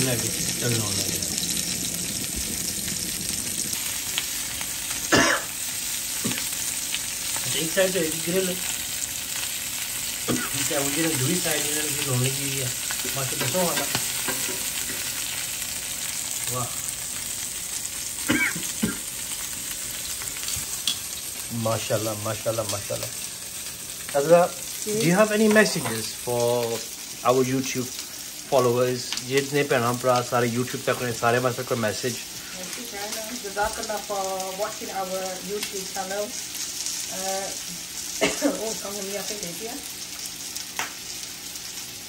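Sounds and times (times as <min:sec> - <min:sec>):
chicken sizzling on griddle: 0:00.0 - 0:42.0.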